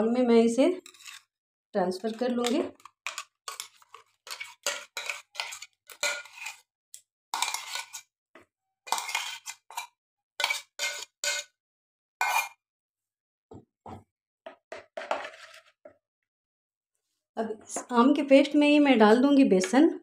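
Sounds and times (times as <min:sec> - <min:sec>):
metal jar scraping and clinking: 0:00.8 - 0:01.3, 0:01.9 - 0:06.7, 0:07.3 - 0:08.1, 0:08.9 - 0:11.6, 0:12.2 - 0:12.6.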